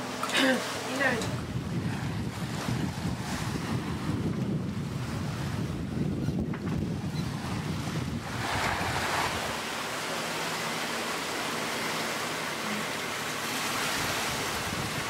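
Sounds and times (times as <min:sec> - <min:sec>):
wind buffeting microphone: 0:01.0 - 0:09.8, 0:13.7 - 0:15.0
hiss of water: 0:08.2 - 0:15.0.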